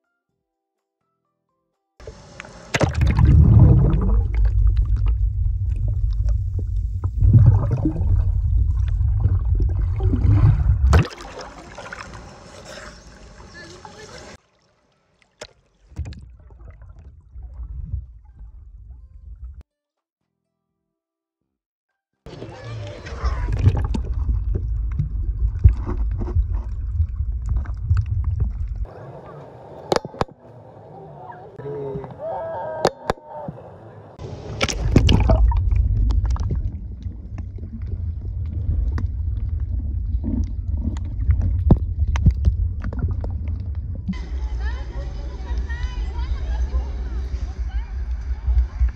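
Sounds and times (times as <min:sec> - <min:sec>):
muffled underwater rumble: 0:02.1 - 0:11.0, 0:16.0 - 0:19.6, 0:22.9 - 0:28.9, 0:34.3 - 0:48.9
water sloshing: 0:02.6 - 0:18.7, 0:23.0 - 0:28.9, 0:34.4 - 0:44.4
clicks and pops: 0:29.9 - 0:30.4, 0:40.3 - 0:44.1.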